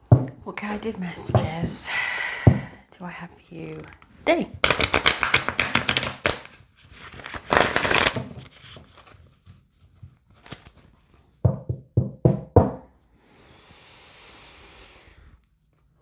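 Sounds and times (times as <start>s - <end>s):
cards being riffle-shuffled: 4.6s - 11.2s.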